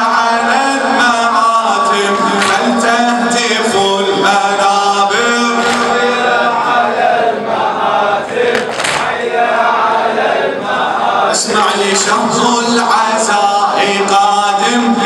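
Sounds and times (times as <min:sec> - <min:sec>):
man chanting over microphone: 0:00.0 - 0:07.4, 0:11.1 - 0:15.0
group of voices chanting: 0:00.0 - 0:15.0.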